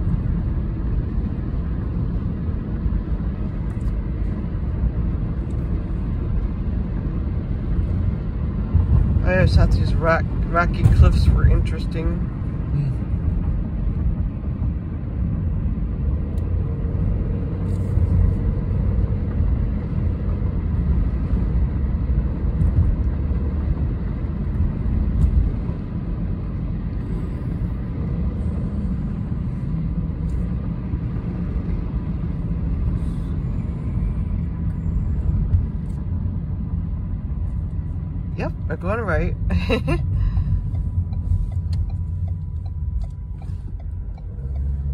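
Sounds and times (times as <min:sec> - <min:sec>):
car cabin road noise: 0:00.0 - 0:44.9.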